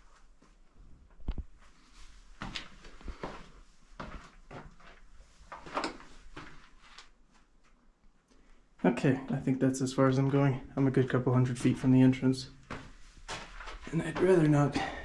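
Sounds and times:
footsteps crunching on rocky floor: 0:12.6 - 0:14.9.

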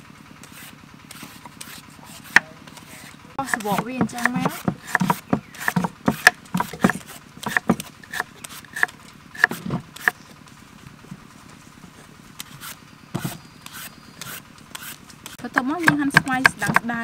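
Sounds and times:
peeler scraping mango: 0:00.4 - 0:10.4, 0:11.8 - 0:17.0.

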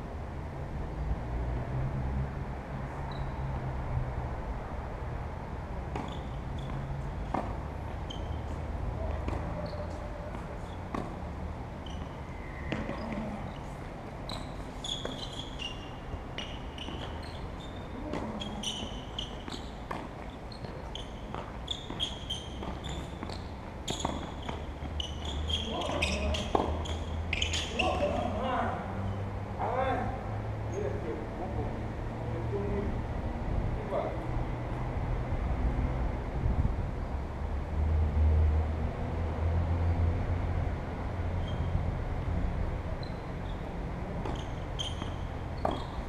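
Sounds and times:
tennis ball struck and bouncing: 0:05.9 - 0:07.6, 0:09.0 - 0:11.2, 0:12.7 - 0:13.4, 0:15.0 - 0:17.4, 0:18.1 - 0:27.1.

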